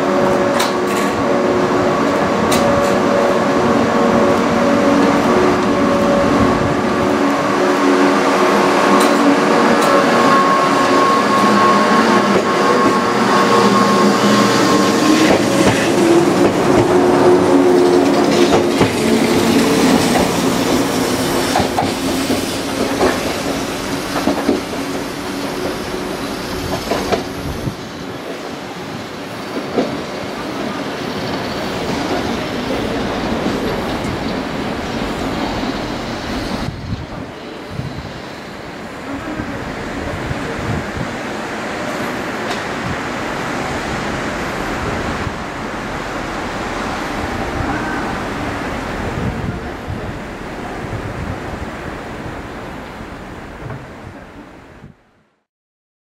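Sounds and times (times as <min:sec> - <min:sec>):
electric train motors humming: 0:00.0 - 0:51.0
wheels clacking over rail joints: 0:14.7 - 0:25.8.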